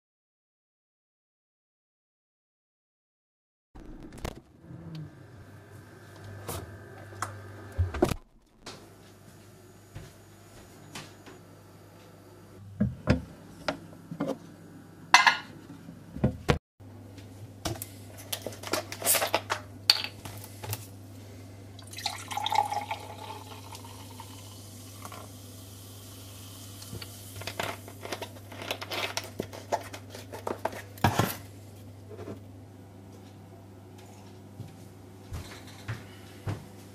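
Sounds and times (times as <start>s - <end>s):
juice pouring into a glass: 21.8s - 25.4s.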